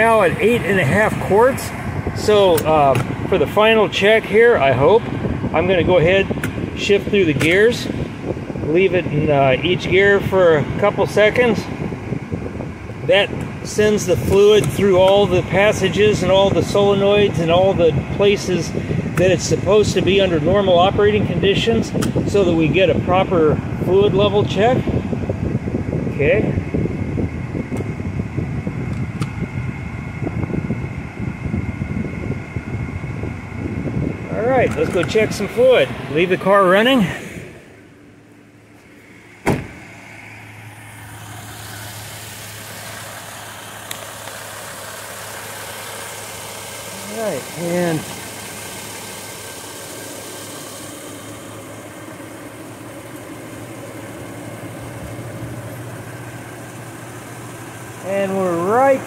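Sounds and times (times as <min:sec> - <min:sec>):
air-conditioning blower: 0:00.0 - 0:59.0
car engine idling: 0:00.0 - 0:59.0.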